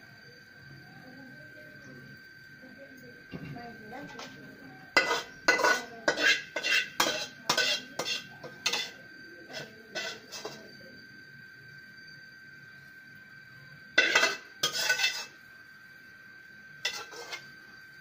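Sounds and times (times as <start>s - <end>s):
metal spoon scraping steel pan: 5.0s - 10.7s, 14.0s - 15.4s, 16.8s - 17.5s.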